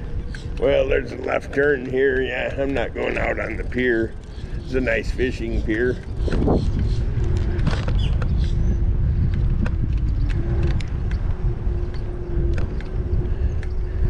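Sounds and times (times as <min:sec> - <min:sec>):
steady hum: 0:00.0 - 0:14.0
wind buffeting microphone: 0:00.0 - 0:14.0.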